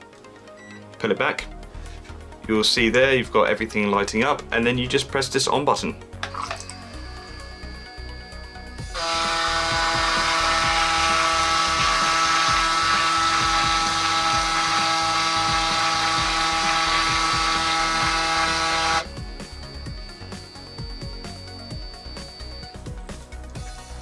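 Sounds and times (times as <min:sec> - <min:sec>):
electric shaver buzzing: 0:06.8 - 0:22.8.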